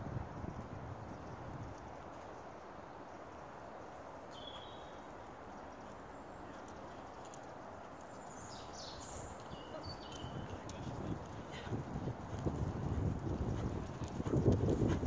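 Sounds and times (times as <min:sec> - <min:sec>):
outdoor background noise: 0:00.0 - 0:15.0
bird chirping: 0:03.9 - 0:10.6
distant horse trotting: 0:09.3 - 0:15.0.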